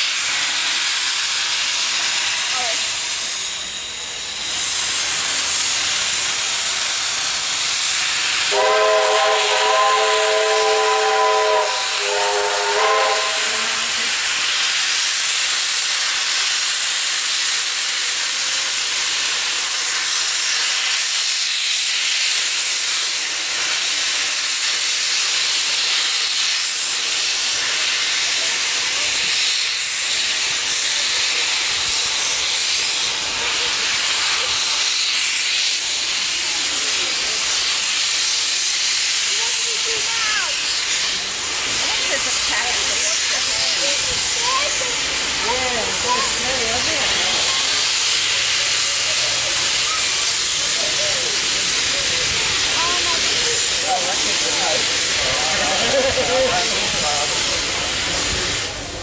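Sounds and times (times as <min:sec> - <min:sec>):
steam hissing: 0:00.0 - 0:59.0
steam whistle: 0:08.4 - 0:14.1.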